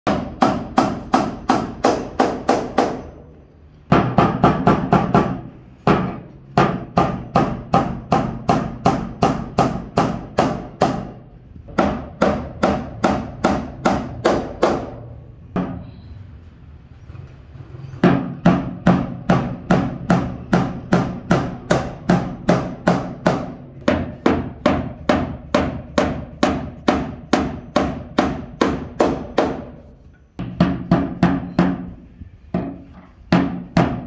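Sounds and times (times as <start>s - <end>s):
hammer driving nails into wood: 3.9s - 15.0s.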